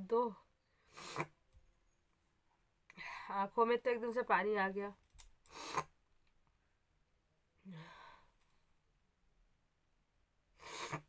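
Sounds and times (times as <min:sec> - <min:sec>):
woman breathing: 0:02.9 - 0:03.4, 0:07.6 - 0:08.7
woman sighing: 0:07.6 - 0:08.3.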